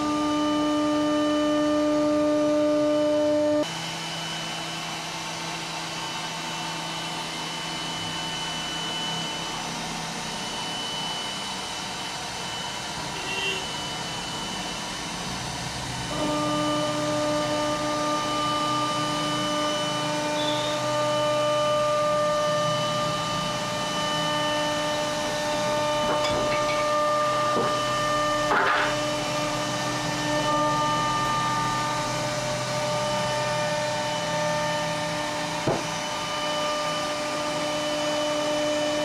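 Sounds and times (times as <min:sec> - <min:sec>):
cnc router spindle whining: 0:00.0 - 0:39.0
router cutting wood: 0:00.0 - 0:39.0.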